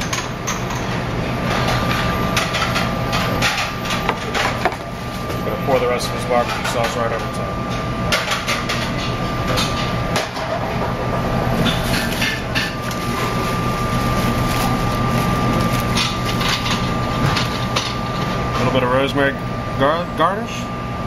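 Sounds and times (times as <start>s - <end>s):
kitchen ventilation hum: 0.0s - 21.0s
utensils and dishes clattering: 11.6s - 18.8s.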